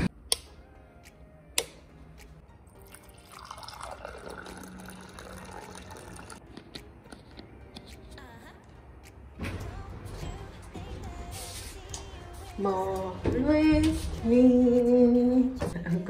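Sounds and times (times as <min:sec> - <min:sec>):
liquid pouring into cup: 0:02.8 - 0:06.4.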